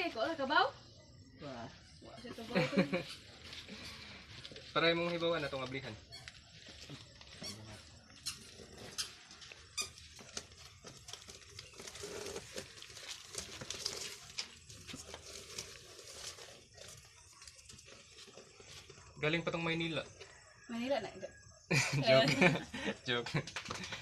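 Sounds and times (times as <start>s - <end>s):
cardboard box rustling and scraping: 10.2s - 18.8s.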